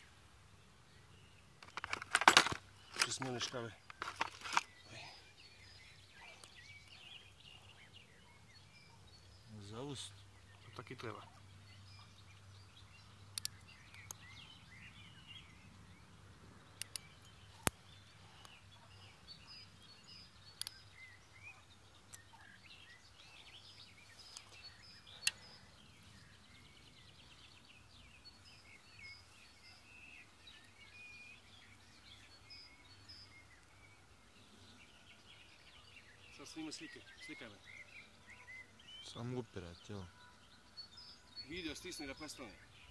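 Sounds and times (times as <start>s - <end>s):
small birds chirping and singing: 0.0s - 42.9s
sharp clicks: 13.3s - 14.2s, 16.8s - 18.6s, 20.5s - 20.9s, 24.3s - 24.6s, 25.2s - 25.5s.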